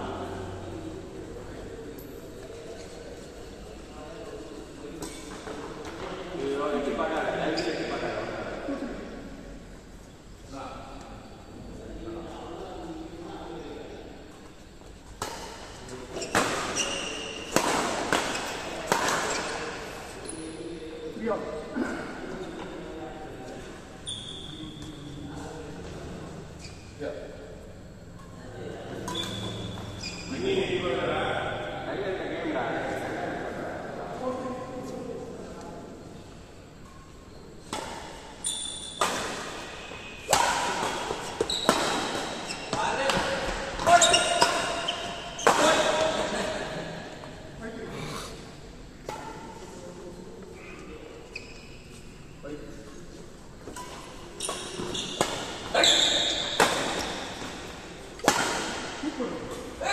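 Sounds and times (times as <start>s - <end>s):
rackets hitting shuttlecock: 15.1s - 19.8s, 37.6s - 46.2s, 53.6s - 59.0s
short high squeak: 29.1s - 30.4s, 38.4s - 39.0s, 55.8s - 56.5s
rackets striking shuttlecock: 53.6s - 59.0s.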